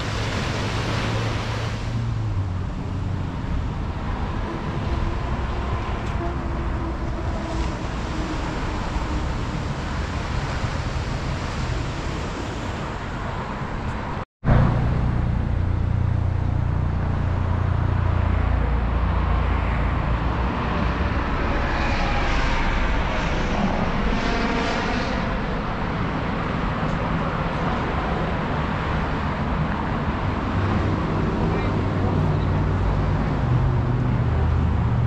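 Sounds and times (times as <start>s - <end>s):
road traffic passing: 0.0s - 35.0s
low rumble: 14.5s - 26.9s.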